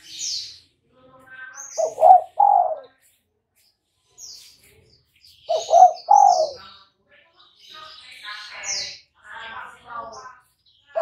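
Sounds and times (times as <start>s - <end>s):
high chirps of small birds: 0.0s - 11.0s
dove cooing: 1.8s - 2.9s, 5.5s - 6.6s.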